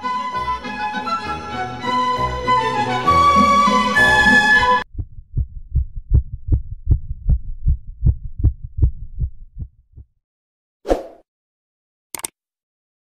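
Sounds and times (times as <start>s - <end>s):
low thumping pulse: 4.8s - 10.1s.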